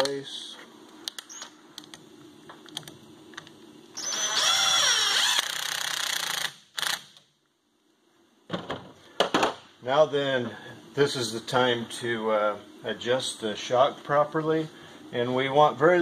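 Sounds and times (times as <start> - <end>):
cordless drill running: 4.0 - 7.0.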